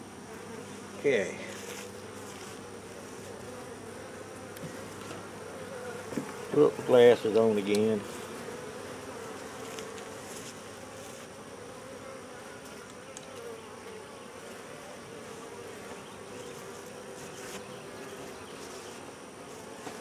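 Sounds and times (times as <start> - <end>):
honey bees buzzing: 0.0 - 20.0
faint ticks: 12.6 - 13.4.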